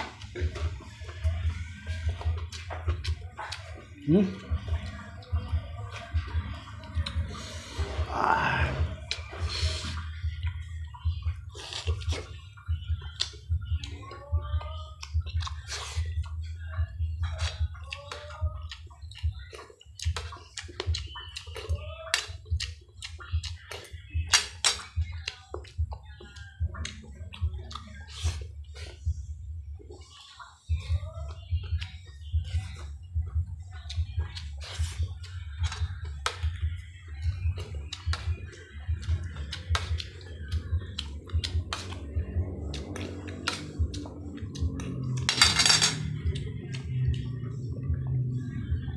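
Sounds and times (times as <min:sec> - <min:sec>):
wet chewing and lip-smacking: 0:00.2 - 0:07.4, 0:08.8 - 0:29.2, 0:29.8 - 0:45.2, 0:46.2 - 0:48.9
low hum: 0:38.7 - 0:48.9
low pulsing rumble: 0:46.0 - 0:48.9.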